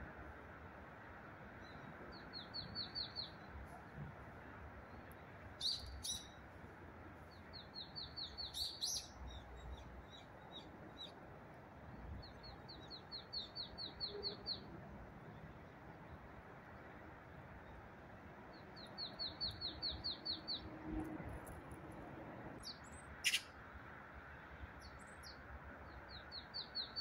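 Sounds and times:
distant road traffic hum: 0.0 - 27.0
small birds chirping: 1.5 - 6.5, 7.2 - 16.9, 18.5 - 22.0, 22.6 - 23.6, 24.2 - 27.0
sharp bird calls: 5.6 - 6.4, 7.5 - 11.2, 22.6 - 23.6.

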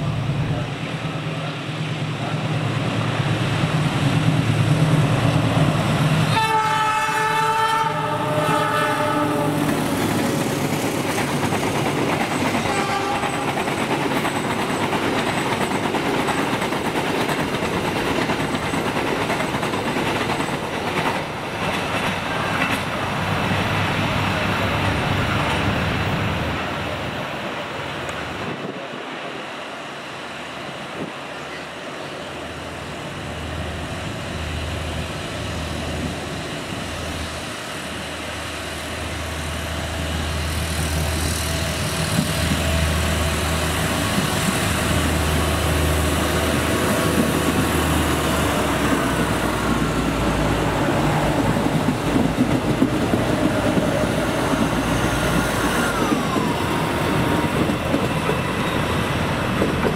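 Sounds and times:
diesel train engine humming: 0.0 - 59.9
road traffic noise: 15.9 - 59.9.

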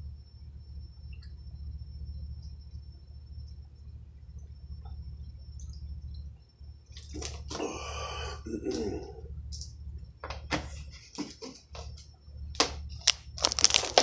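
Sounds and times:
plastic bottle crinkling: 6.9 - 7.6, 12.6 - 14.0
person gulping water: 7.0 - 9.8
loud breath out: 7.5 - 9.2.

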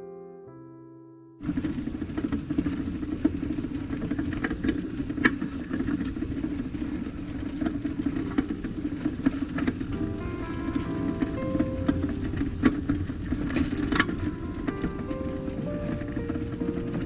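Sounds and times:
knocks and rattles from bumps: 1.4 - 17.0
vehicle engine and road noise: 1.4 - 17.0.

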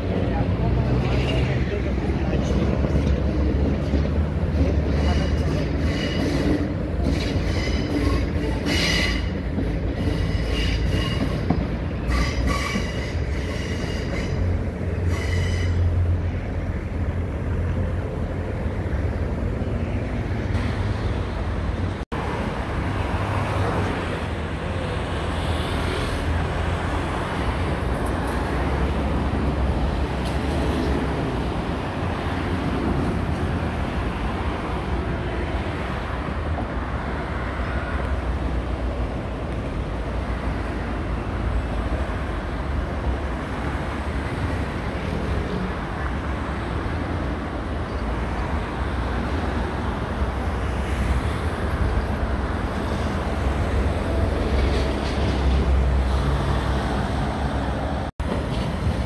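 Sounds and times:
heavy low train rumble: 0.0 - 59.0
road traffic noise: 0.0 - 59.0
train wheels squealing: 4.9 - 16.0.

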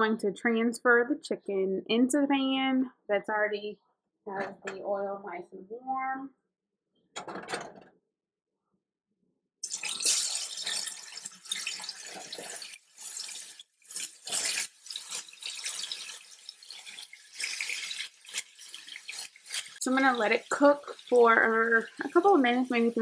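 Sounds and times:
chicken sizzling in hot oil: 9.6 - 23.0.

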